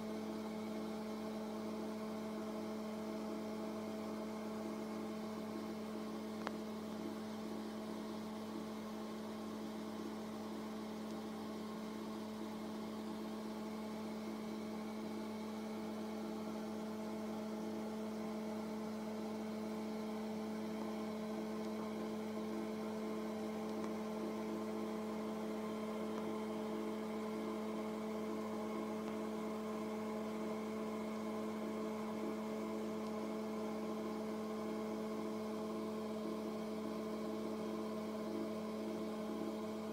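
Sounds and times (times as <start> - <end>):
electrical hum: 0.0 - 39.9
faint click: 6.4 - 6.6, 23.6 - 24.0.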